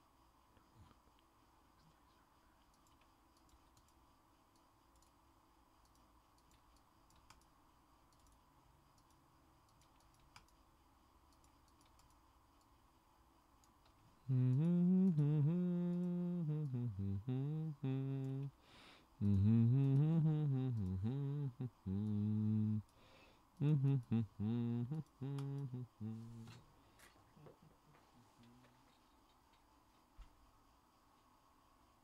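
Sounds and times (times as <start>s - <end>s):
keyboard and mouse clicks: 2.6s - 5.2s, 5.8s - 7.5s, 8.1s - 10.6s, 11.3s - 12.7s
man humming: 14.2s - 18.6s, 19.2s - 22.9s, 23.6s - 26.6s, 28.2s - 28.8s.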